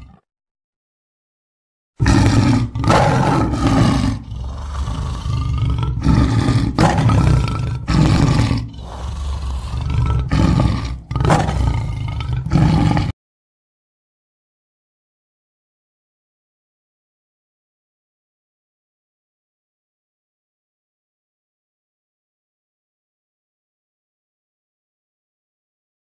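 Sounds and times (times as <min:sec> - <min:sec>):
big cat roaring: 0:00.0 - 0:00.2, 0:02.0 - 0:13.2
low growling: 0:02.0 - 0:13.2.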